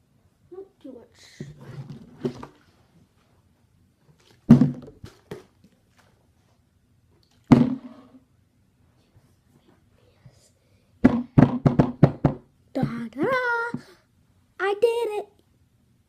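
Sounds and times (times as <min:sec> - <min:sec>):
plastic bottle landing thuds: 0:04.4 - 0:05.5, 0:07.5 - 0:07.9, 0:11.0 - 0:12.4.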